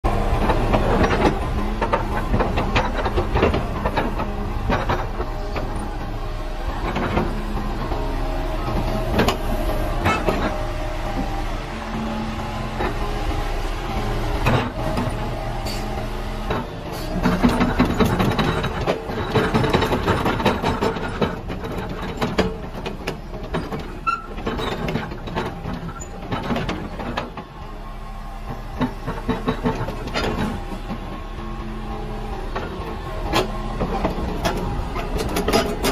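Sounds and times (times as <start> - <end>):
excavator diesel engine running: 0.0 - 35.9
metallic clanks and rattles: 0.4 - 8.0, 16.5 - 27.5, 33.3 - 35.9.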